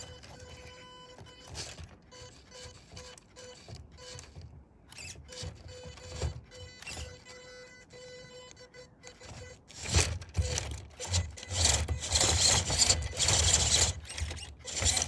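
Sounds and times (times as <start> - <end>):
toy car electric motor whining: 0.0 - 15.0
knocks and scrapes over obstacles: 9.3 - 15.0.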